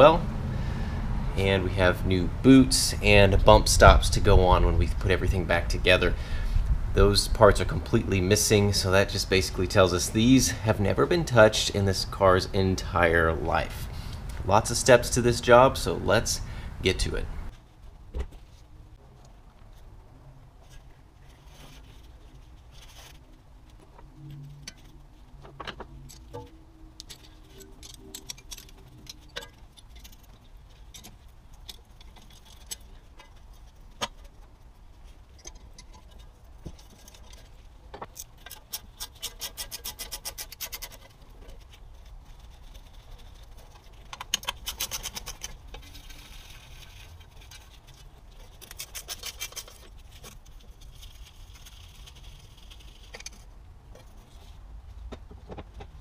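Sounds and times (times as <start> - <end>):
metal scraping: 20.6 - 54.6.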